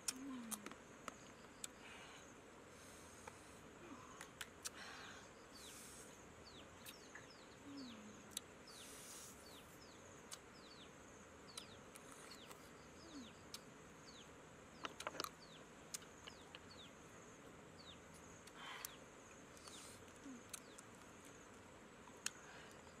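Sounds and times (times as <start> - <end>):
faint insect buzz: 0.0 - 23.0
birds chirping: 4.7 - 23.0.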